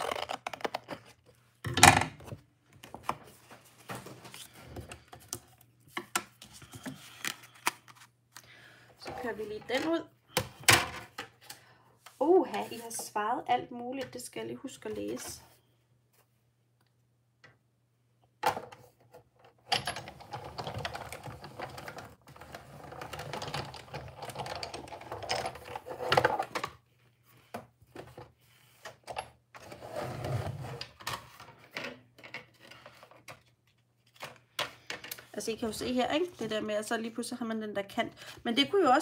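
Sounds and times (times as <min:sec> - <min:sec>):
paper rustling and shuffling: 0:02.8 - 0:08.5.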